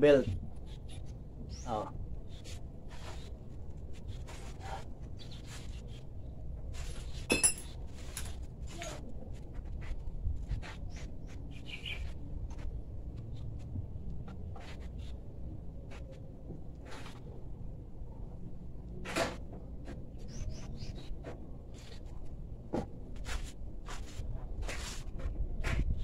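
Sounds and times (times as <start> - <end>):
sharp ringing metal clink: 7.3 - 7.7
metal parts clinking: 7.3 - 8.3.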